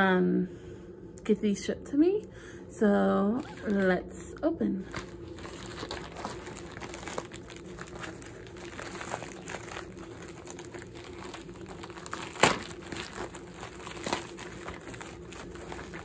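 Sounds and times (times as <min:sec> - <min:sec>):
plastic packaging crinkling: 0:03.4 - 0:16.0
sharp loud crackle: 0:11.1 - 0:14.6.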